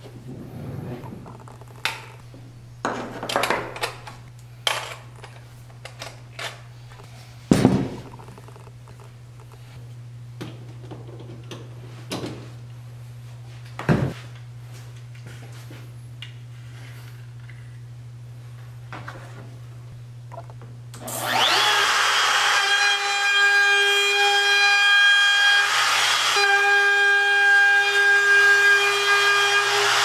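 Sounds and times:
steady low hum: 0.0s - 21.0s
wood router knocking and clattering: 21.2s - 30.0s.

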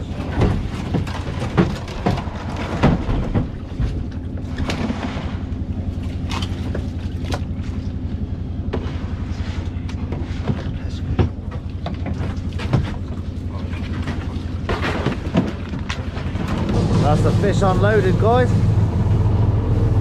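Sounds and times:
plastic boxes knocking and clattering: 0.0s - 4.9s
engine idling low hum: 0.0s - 20.0s.

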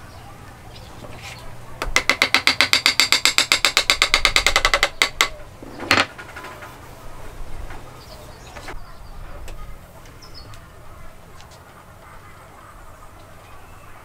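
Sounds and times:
wooden mallet tapping wood: 1.8s - 6.1s.

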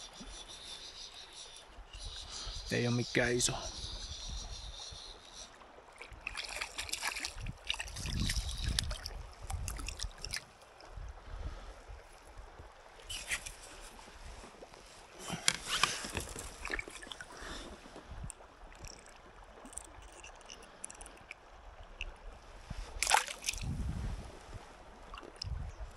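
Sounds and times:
water splashing and sloshing: 5.2s - 25.9s.

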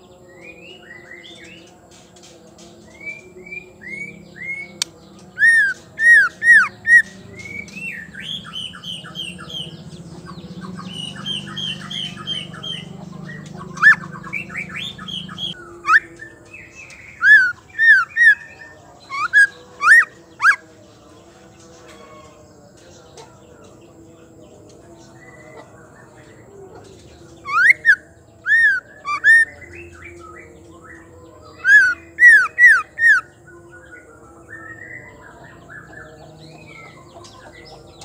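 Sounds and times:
songbird whistling and chattering: 2.9s - 20.6s, 26.8s - 38.0s.

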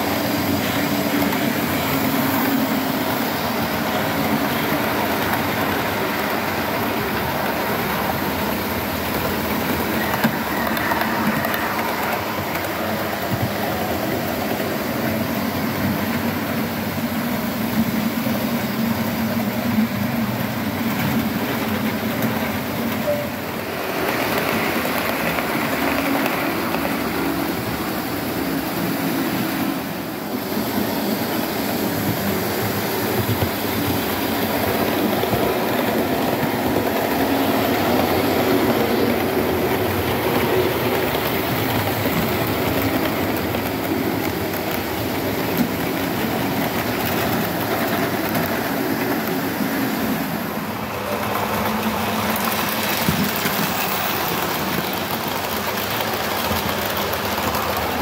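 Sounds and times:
wheels running over track: 51.0s - 58.0s.

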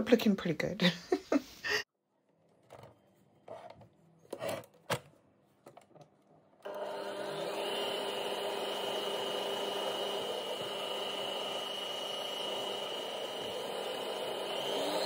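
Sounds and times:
electric mixer whining: 6.6s - 15.0s.

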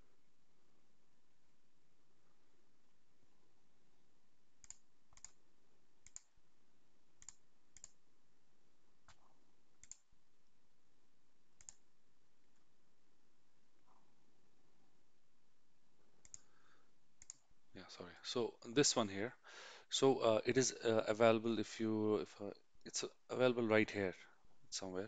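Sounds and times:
computer mouse clicking: 4.6s - 5.4s, 6.0s - 6.3s, 7.2s - 8.0s, 9.0s - 10.1s, 11.6s - 11.8s, 16.2s - 16.5s, 17.2s - 17.4s.

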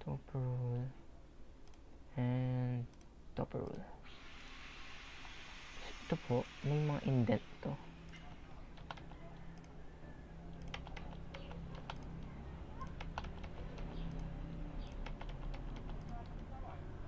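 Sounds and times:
steady low hum: 0.0s - 17.0s
keyboard keys clicking: 8.8s - 9.7s, 10.5s - 16.5s.

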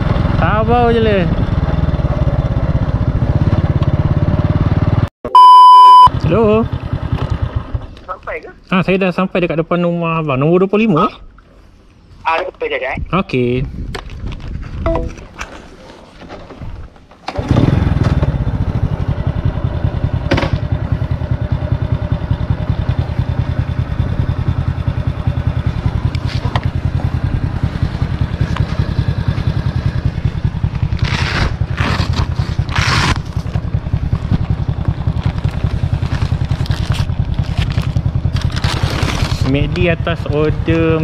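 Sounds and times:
scooter engine starting and running: 0.0s - 8.0s, 17.2s - 41.0s
short scraping noises: 31.0s - 33.5s.

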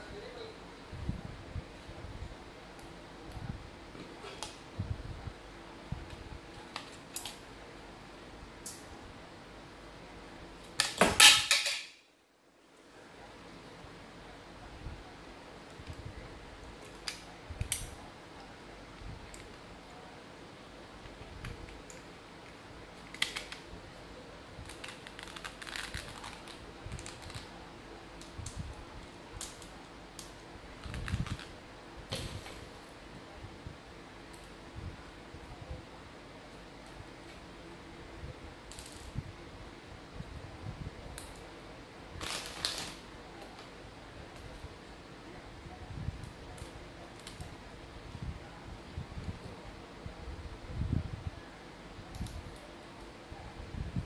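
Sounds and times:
rustling: 22.9s - 27.7s.

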